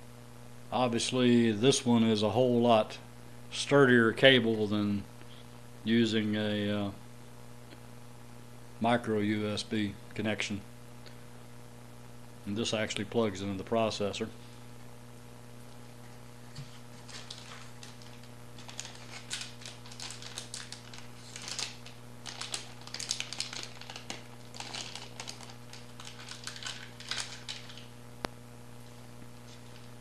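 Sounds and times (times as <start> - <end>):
plastic bags crinkling: 16.7 - 27.9.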